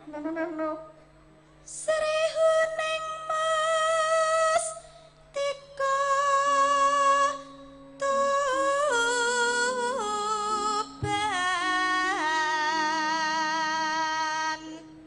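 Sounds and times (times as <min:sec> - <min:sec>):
woman singing into a microphone: 0:00.0 - 0:15.0
singer breathing: 0:04.8 - 0:05.3.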